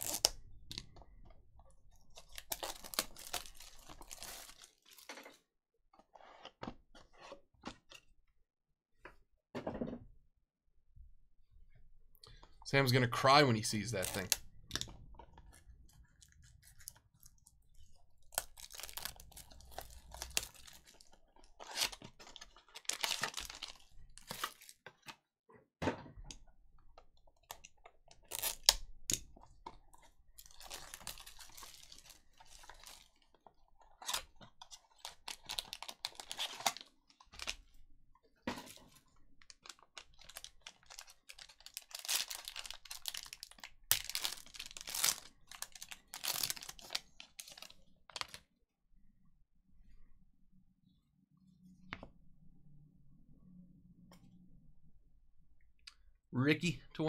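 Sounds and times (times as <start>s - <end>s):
plastic wrap tearing and crinkling: 0.0s - 0.4s, 2.1s - 5.2s, 18.2s - 24.8s, 28.2s - 28.8s, 30.4s - 37.6s, 39.4s - 48.4s
foil pack crinkling: 2.2s - 5.2s, 13.7s - 14.4s, 18.2s - 24.8s, 30.4s - 33.3s, 33.9s - 37.6s, 39.4s - 48.4s.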